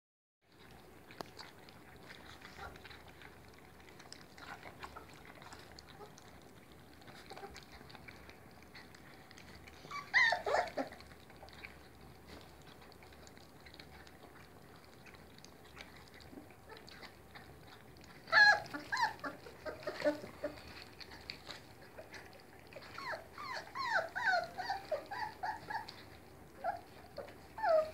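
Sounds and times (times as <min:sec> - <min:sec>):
puppies lapping food: 0:00.4 - 0:27.9
puppy whining yelps: 0:09.6 - 0:11.6, 0:18.1 - 0:21.3, 0:21.9 - 0:27.9.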